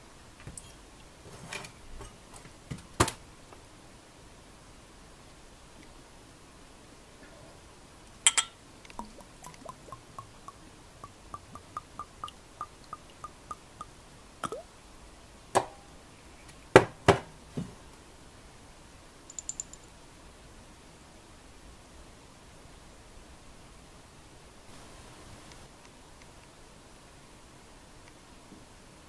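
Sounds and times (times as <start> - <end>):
faint glass clink: 8.3 - 14.6
light ticks: 8.8 - 13.9
whisky gurgling into glass: 8.9 - 14.7
bottle and glass knocking on table: 11.0 - 13.6.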